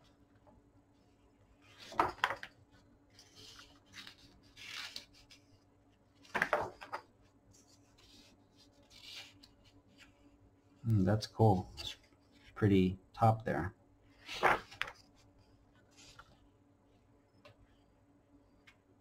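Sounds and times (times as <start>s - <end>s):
book pages turning: 1.6s - 10.3s, 14.2s - 16.4s.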